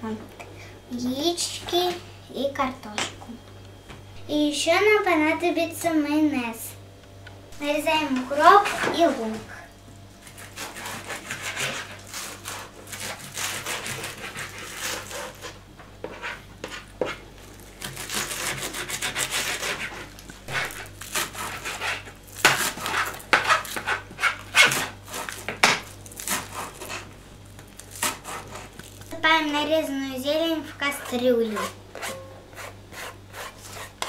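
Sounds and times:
knives chopping on cutting boards: 0:17.8 - 0:19.9, 0:20.5 - 0:27.0.

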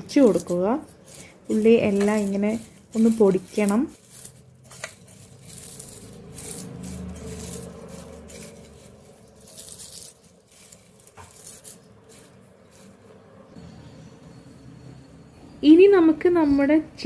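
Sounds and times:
fried onions rustling and crackling: 0:00.0 - 0:13.4.

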